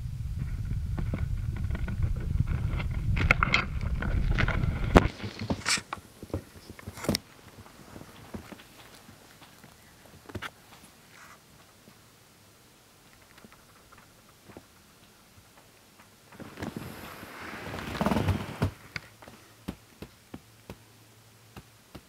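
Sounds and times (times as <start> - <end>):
low rumbling handling noise: 0.0 - 10.5
soft rustles and ticks: 0.4 - 12.1, 12.9 - 22.0
blankets rustling: 16.3 - 19.5.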